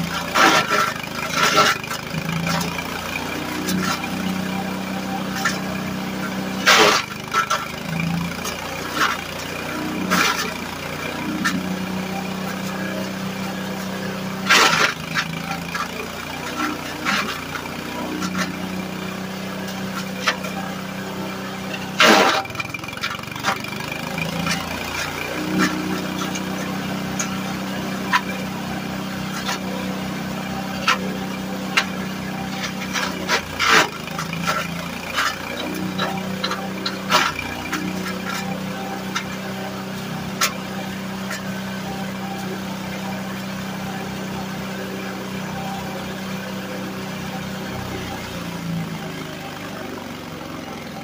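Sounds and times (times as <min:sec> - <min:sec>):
small engine running: 0:00.0 - 0:51.0
wood cracking in chipper: 0:00.0 - 0:51.0
loud crunch: 0:06.6 - 0:11.7, 0:13.6 - 0:18.7, 0:19.6 - 0:28.4.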